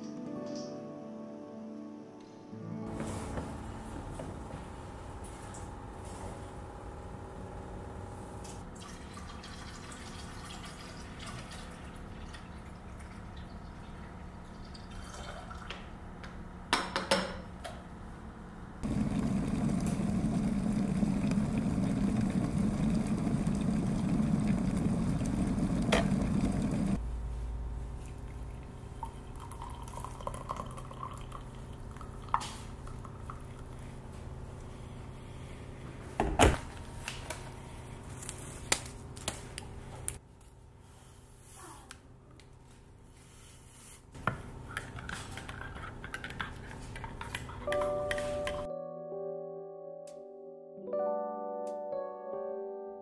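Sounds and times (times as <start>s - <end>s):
faint steady hum: 3.2s - 42.6s
water rushing in kettle: 8.6s - 13.5s, 18.8s - 27.0s, 28.9s - 33.8s
hot water trickling into mug: 8.8s - 13.5s, 14.5s - 15.7s, 28.2s - 33.8s.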